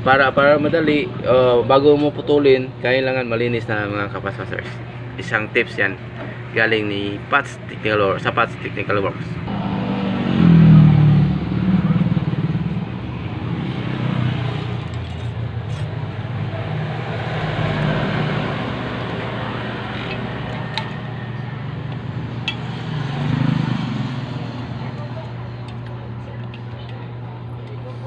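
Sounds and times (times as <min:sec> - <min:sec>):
engine humming: 0:05.8 - 0:28.0.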